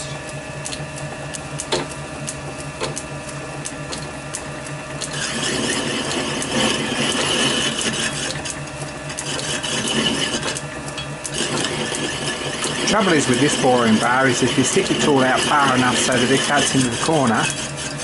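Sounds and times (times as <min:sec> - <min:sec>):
lathe motor humming: 0:00.0 - 0:18.0
metal cutting scrape with squeal: 0:05.0 - 0:18.0.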